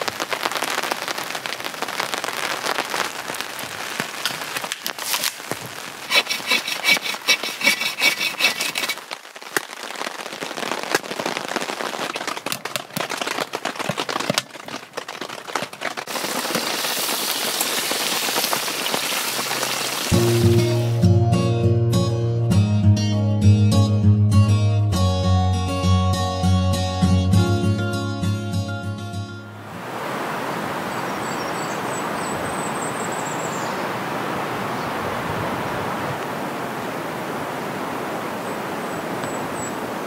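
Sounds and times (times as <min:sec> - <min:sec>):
rain pattering on tarp: 0:00.0 - 0:21.0
steak sizzling in pan: 0:16.1 - 0:21.0.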